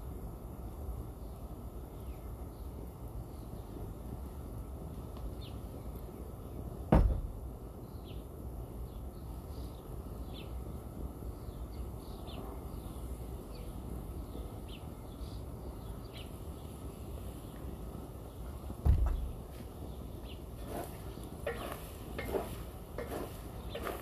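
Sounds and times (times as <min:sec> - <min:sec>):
birds chirping: 0:01.1 - 0:24.0
sharp knock: 0:06.9 - 0:07.4, 0:18.8 - 0:19.2.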